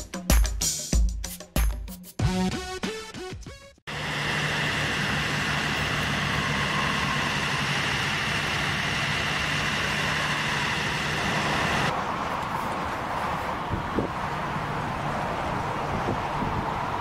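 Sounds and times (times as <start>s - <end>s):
music: 0.0s - 3.9s
vehicle engine idling: 3.9s - 12.9s.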